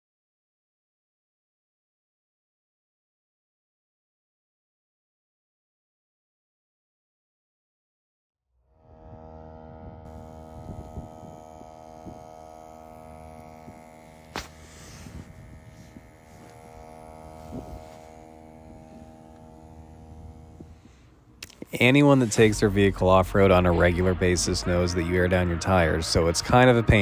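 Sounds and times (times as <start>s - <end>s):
air compressor buzzing hum: 8.8s - 27.0s.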